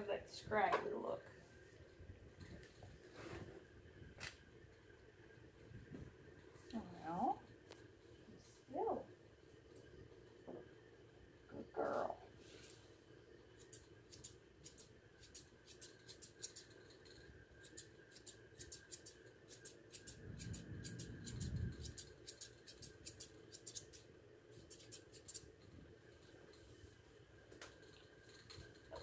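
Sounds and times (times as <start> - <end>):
scissors snipping hair: 13.6 - 16.7, 17.6 - 24.0, 24.6 - 25.5.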